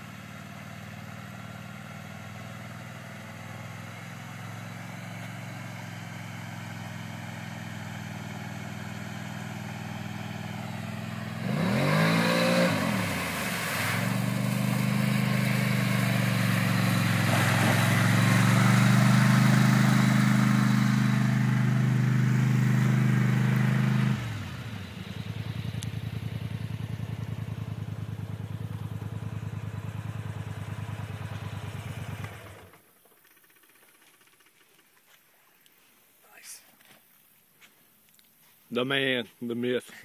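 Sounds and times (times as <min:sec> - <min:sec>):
quad engine running hard: 0:00.0 - 0:32.8
engine low putter: 0:04.7 - 0:35.0
water spray hissing: 0:11.9 - 0:20.7.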